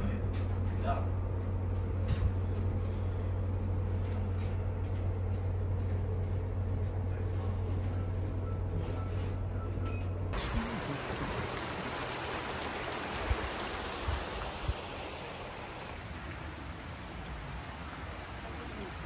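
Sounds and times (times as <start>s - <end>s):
steady low hum: 0.0s - 19.0s
river water rushing: 10.4s - 19.0s.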